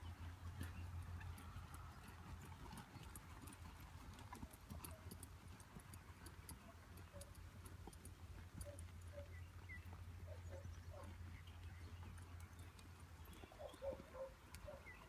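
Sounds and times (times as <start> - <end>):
horse hoofbeats on mud: 0.0 - 15.0.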